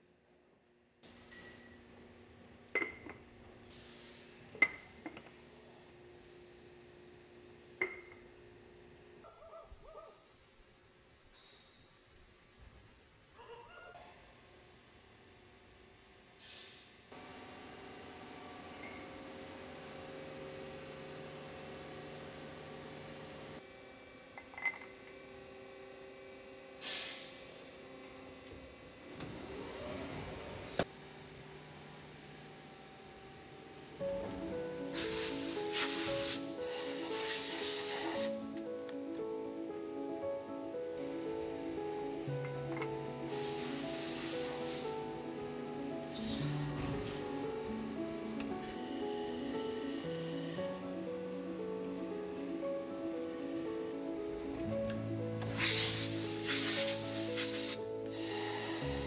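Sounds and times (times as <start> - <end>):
short hiss: 46.0 - 46.7, 55.4 - 58.9.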